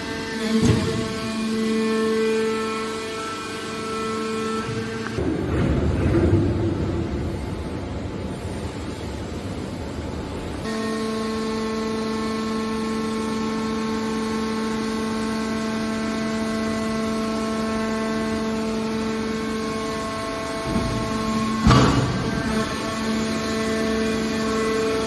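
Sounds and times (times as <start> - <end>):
hydraulic baler rumbling: 0.0 - 25.0
steady pitched hum: 0.0 - 25.0.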